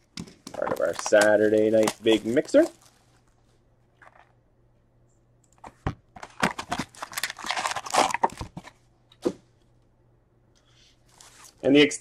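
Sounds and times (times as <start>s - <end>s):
cardboard and foil tearing: 0.6s - 3.0s, 6.4s - 8.5s.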